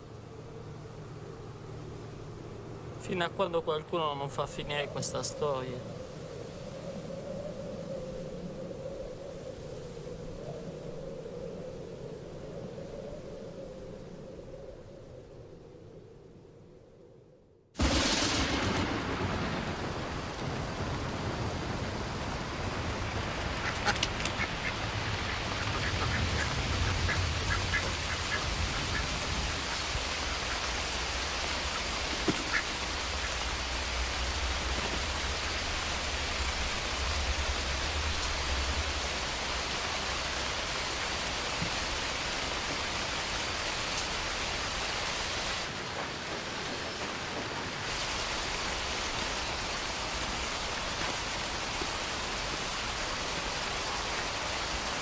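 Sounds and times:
steady rain falling: 0.0s - 16.2s, 17.8s - 55.0s
duck quacking: 23.6s - 29.1s, 32.4s - 33.3s.

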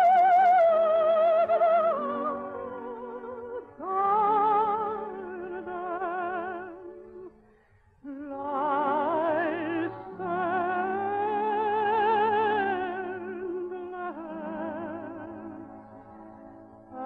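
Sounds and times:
soprano singing operatic melody: 0.0s - 7.4s, 8.0s - 17.0s.

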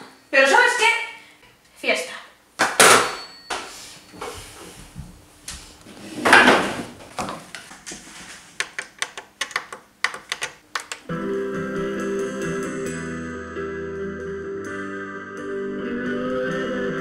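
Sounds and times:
sharp clicks and knocks: 8.6s - 11.1s.

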